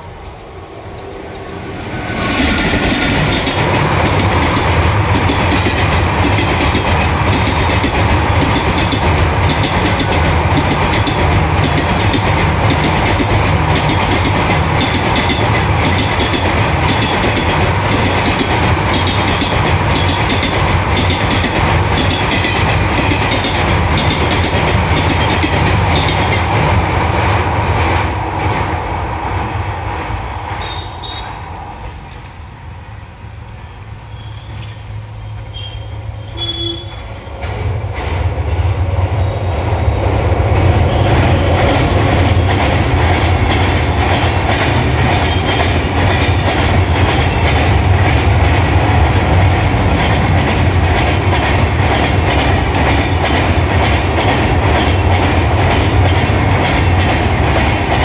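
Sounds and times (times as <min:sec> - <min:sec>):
train rumbling over bridge: 0:00.0 - 0:58.0
rhythmic wheel clatter: 0:02.4 - 0:28.0, 0:40.6 - 0:58.0.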